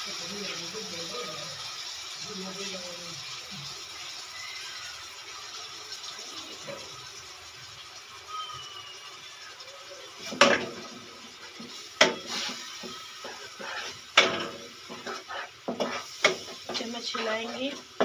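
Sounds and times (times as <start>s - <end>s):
wooden spatula stirring in wok: 10.3s - 18.0s.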